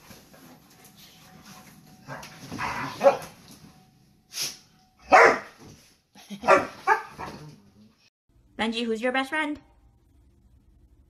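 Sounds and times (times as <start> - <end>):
dogs barking: 2.6 - 3.4, 5.0 - 5.6, 6.4 - 7.4.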